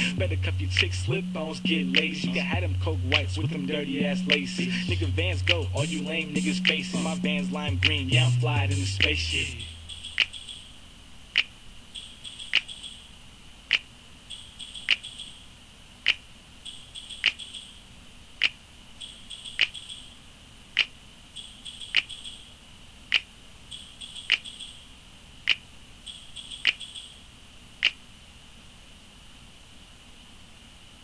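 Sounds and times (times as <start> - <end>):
faint high chirping: 3.2 - 10.8, 11.9 - 15.6, 16.6 - 17.9, 18.9 - 22.6, 23.6 - 25.0, 26.0 - 27.4
sharp repeating click: 9.0 - 10.7, 11.4 - 13.1, 13.7 - 15.4, 16.0 - 17.8, 18.4 - 20.2, 20.8 - 22.5, 23.1 - 24.8, 25.5 - 27.2.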